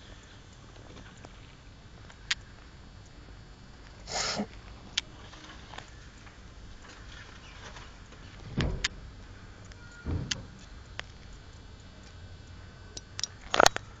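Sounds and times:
faint background noise: 0.0s - 14.0s
camera handling bumps and clicks: 13.2s - 13.8s.

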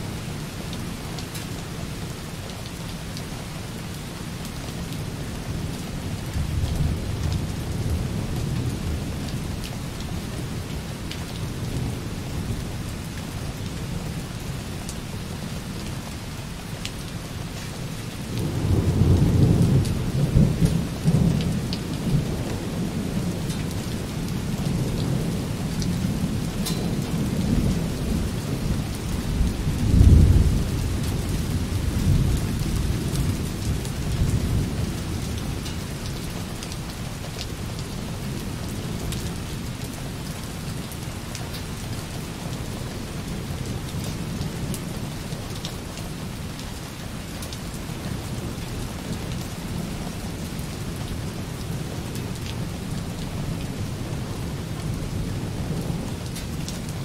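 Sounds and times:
light rain on a window: 0.0s - 57.0s
distant rolling thunder: 18.3s - 36.0s.

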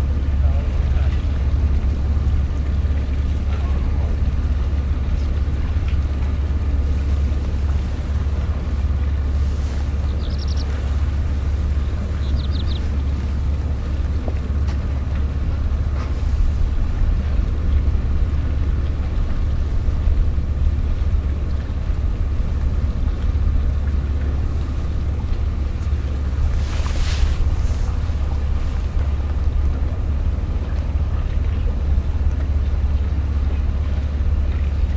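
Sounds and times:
steady low rumble: 0.0s - 34.9s.

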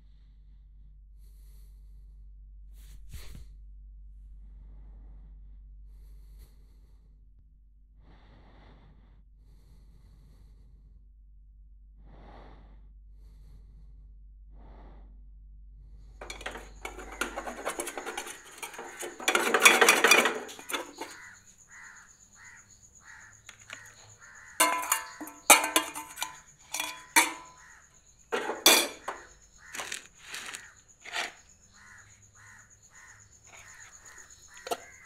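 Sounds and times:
frying pan clattering on burner: 16.2s - 21.2s, 24.6s - 27.6s, 28.3s - 30.0s
crows cawing: 21.1s - 25.3s, 27.4s - 27.9s, 29.4s - 30.8s, 31.7s - 35.0s.

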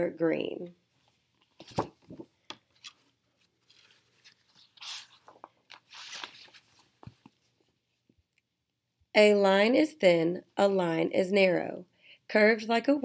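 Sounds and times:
book pages rustling: 1.0s - 7.9s.

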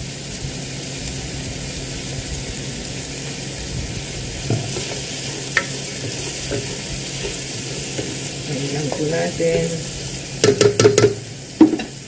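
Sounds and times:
vegetables sizzling in oil: 0.0s - 12.0s
spatula stirring: 4.4s - 11.9s.

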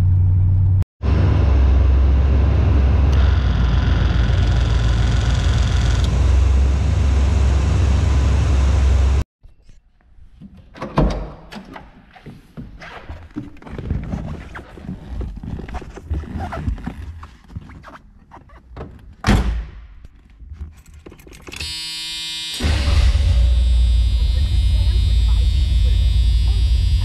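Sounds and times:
steady key warning tone: 21.6s - 27.0s.

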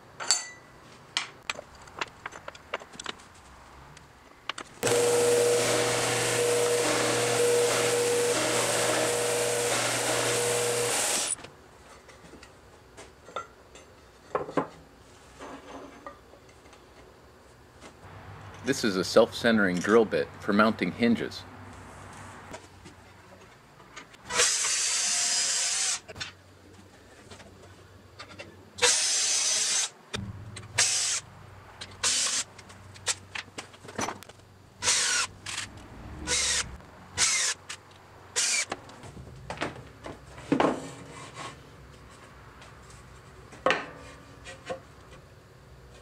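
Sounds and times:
cordless drill running: 4.8s - 11.4s.

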